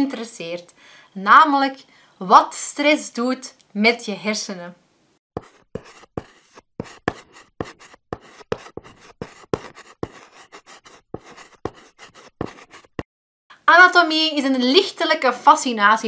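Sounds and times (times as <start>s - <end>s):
chalk writing on blackboard: 5.4s - 13.1s.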